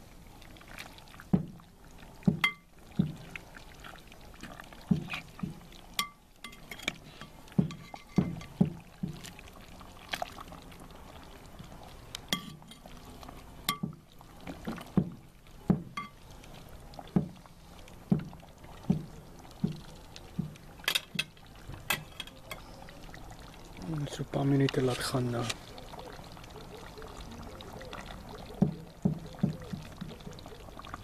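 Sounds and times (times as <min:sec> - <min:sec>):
liquid slopping: 0:00.0 - 0:31.0
metal ladle scraping pot: 0:06.0 - 0:08.6, 0:12.3 - 0:13.0, 0:20.8 - 0:22.7.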